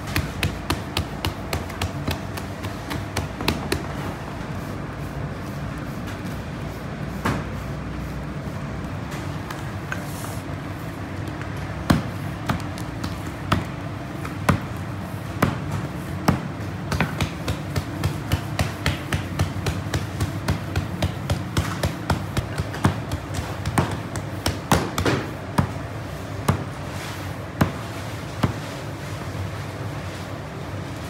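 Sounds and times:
hands and stamp thumping dough: 0:00.0 - 0:04.2, 0:11.2 - 0:26.9, 0:27.5 - 0:28.7
steady low hum: 0:00.0 - 0:31.0.

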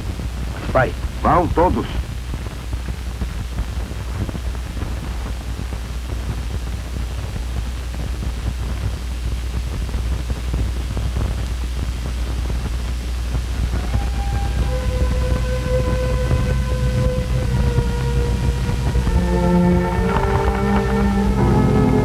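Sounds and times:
steady hiss: 0:00.0 - 0:22.0
low hum: 0:12.1 - 0:22.0.

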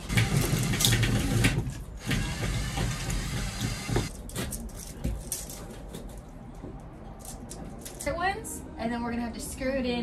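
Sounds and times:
cordless drill running: 0:02.0 - 0:04.1.

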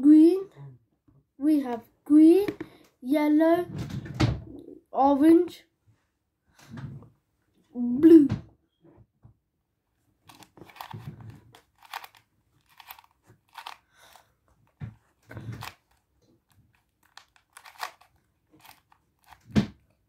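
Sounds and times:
puzzle cube clicking and rattling: 0:10.3 - 0:19.9.

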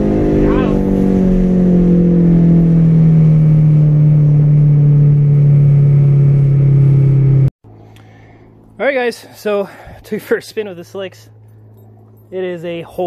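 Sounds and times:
car engine from inside cabin: 0:00.0 - 0:07.5.

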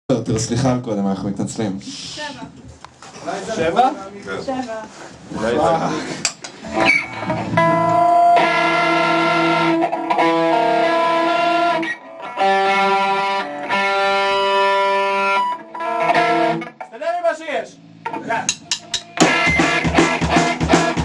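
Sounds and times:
electric guitar chords ringing: 0:06.6 - 0:16.9, 0:17.8 - 0:21.0.

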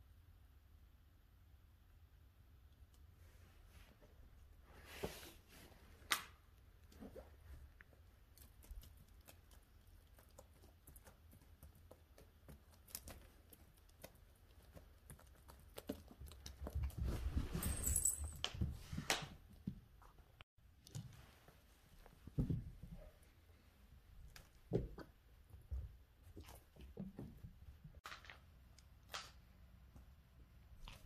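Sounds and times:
rustling and scuffing: 0:16.8 - 0:19.4.

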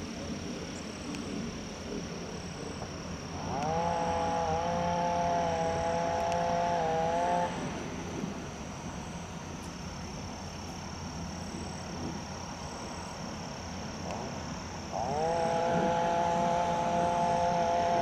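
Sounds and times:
background hiss: 0:00.0 - 0:18.0
chainsaw revving: 0:03.3 - 0:08.3, 0:14.8 - 0:18.0.

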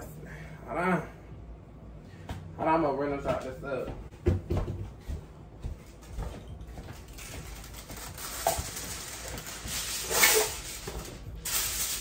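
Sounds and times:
aluminium foil crinkling: 0:07.0 - 0:12.0.

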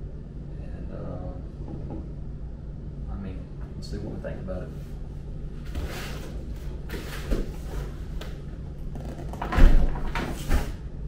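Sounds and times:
cardboard scraping and rustling: 0:05.7 - 0:08.2.

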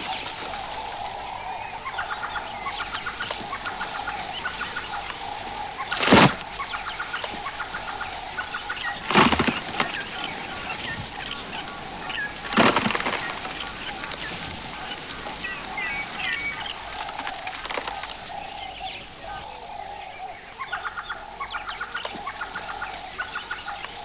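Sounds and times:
birds clucking: 0:00.0 - 0:24.0
tree trunk cracking: 0:05.9 - 0:06.6, 0:08.9 - 0:15.8, 0:17.0 - 0:18.9.

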